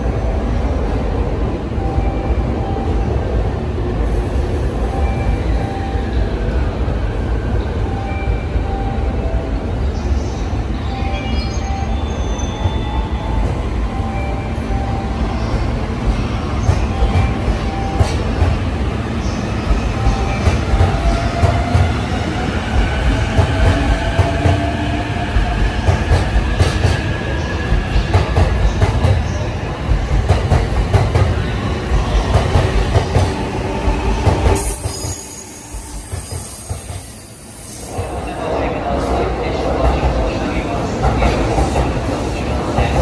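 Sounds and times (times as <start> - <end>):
train rumble: 11.7 - 43.0.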